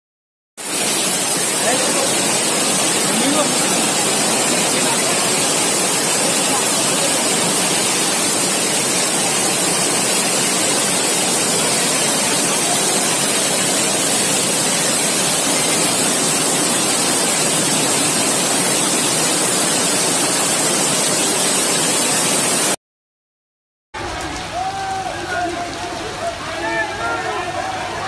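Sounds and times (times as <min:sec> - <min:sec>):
water rushing: 0:00.6 - 0:22.8.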